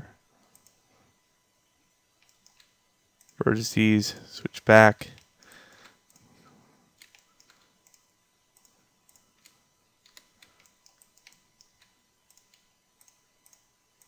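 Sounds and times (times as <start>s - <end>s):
computer mouse and keyboard clicks: 2.2s - 3.4s, 7.0s - 13.7s.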